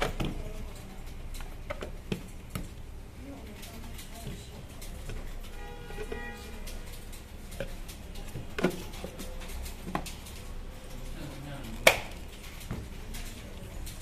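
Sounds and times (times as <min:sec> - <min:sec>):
plastic knocks and clicks: 0:07.5 - 0:10.2.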